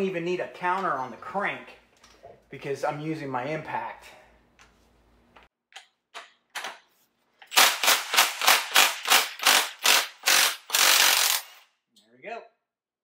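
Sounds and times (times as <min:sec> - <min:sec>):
impact wrench hammering rattle: 0:07.4 - 0:11.7.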